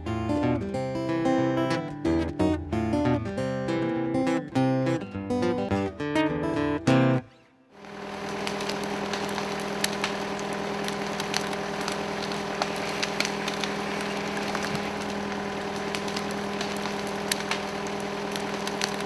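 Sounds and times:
log dragged over dry leaves: 0:07.8 - 0:19.0
tractor engine running: 0:07.8 - 0:19.0.

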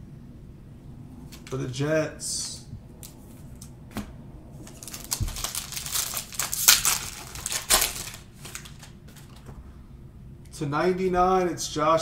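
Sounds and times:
foil wrapper crinkling: 0:04.6 - 0:09.5.

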